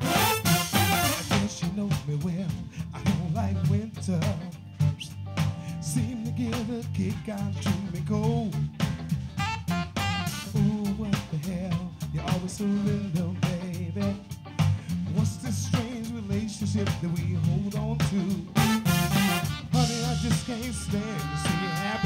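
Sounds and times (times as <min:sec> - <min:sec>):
funk band playing: 0:00.0 - 0:22.0
person singing lead: 0:09.4 - 0:22.0.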